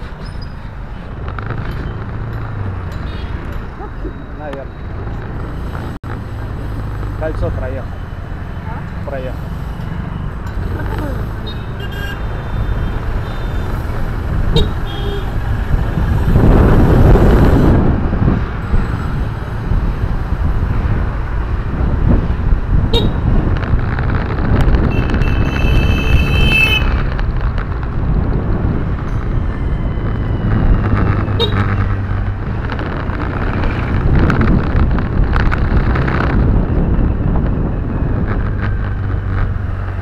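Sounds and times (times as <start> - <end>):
passing traffic rush: 0.0 - 40.0
road and engine noise in car: 0.0 - 40.0
vehicle horns tooting: 10.8 - 16.3, 22.9 - 23.3, 24.8 - 27.0, 31.0 - 31.8.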